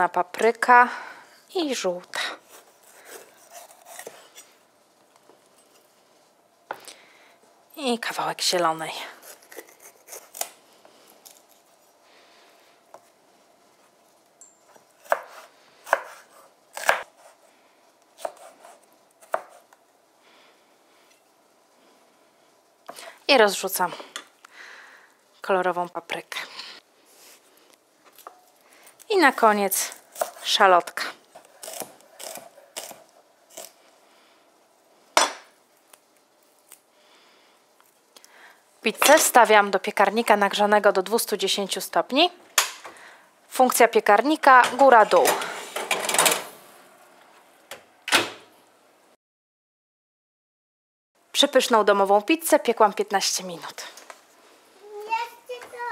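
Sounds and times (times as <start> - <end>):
knife chopping on wooden board: 18.2 - 19.6.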